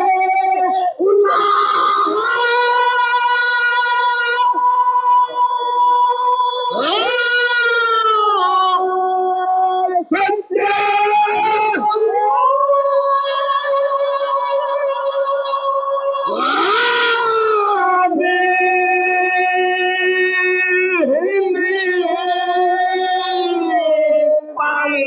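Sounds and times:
man chanting in high held notes: 0.0 - 25.0.

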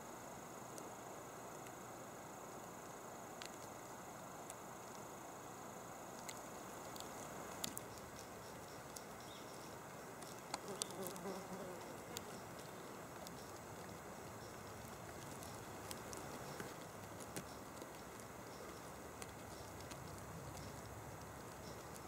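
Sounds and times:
steady hiss: 0.0 - 22.0
small clicks: 3.4 - 5.1.

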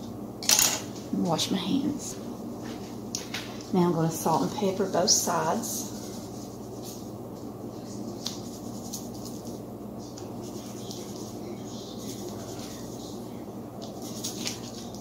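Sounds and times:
low kitchen hum: 0.0 - 15.0
scratchy ticks of seasoning: 5.8 - 13.2.

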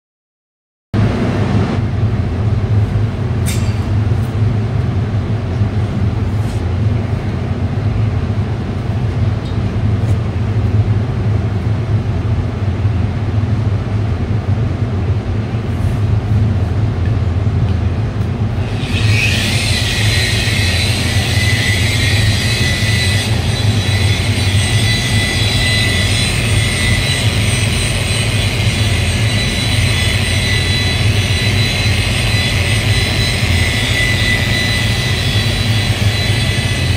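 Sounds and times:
high steady whine: 1.0 - 36.9.

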